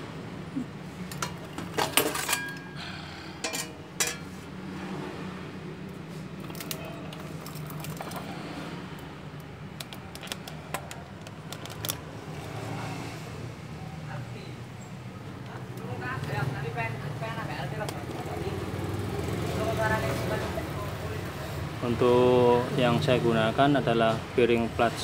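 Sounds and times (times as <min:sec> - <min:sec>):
metal clips clinking: 0:01.0 - 0:02.8, 0:03.4 - 0:04.3, 0:06.4 - 0:08.3.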